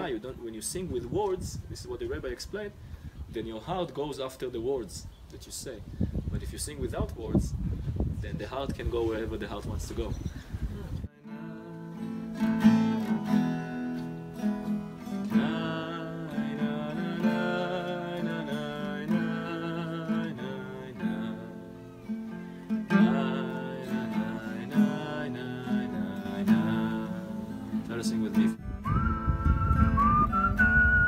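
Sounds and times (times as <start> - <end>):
man singing wordless melody: 11.1 - 13.7, 14.9 - 31.0
acoustic guitar strumming: 11.1 - 31.0.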